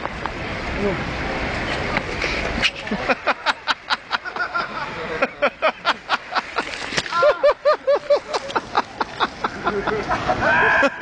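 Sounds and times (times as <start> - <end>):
person laughing hard: 7.1 - 11.0.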